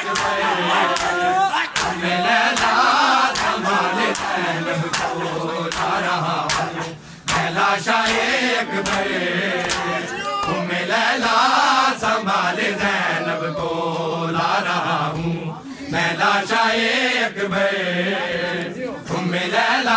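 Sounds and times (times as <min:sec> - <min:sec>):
crowd of men chanting: 0:00.0 - 0:19.9
hands slapping bare chests: 0:00.1 - 0:10.6.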